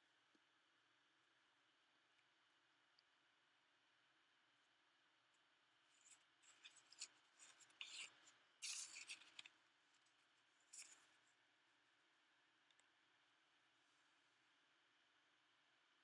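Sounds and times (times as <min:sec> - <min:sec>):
paintbrush rubbing on rock: 0:06.0 - 0:09.5, 0:10.6 - 0:11.1.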